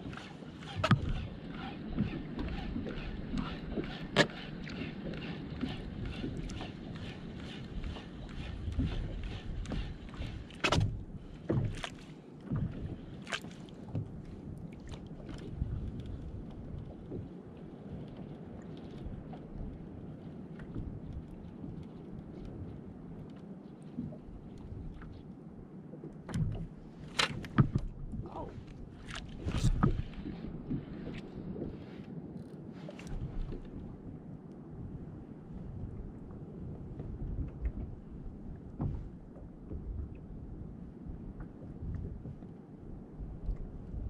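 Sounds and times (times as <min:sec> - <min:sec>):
waves slapping a kayak hull: 0:00.0 - 0:44.0
wind rumble on microphone: 0:00.0 - 0:44.0
knocks on boat: 0:10.6 - 0:11.8, 0:26.3 - 0:27.9.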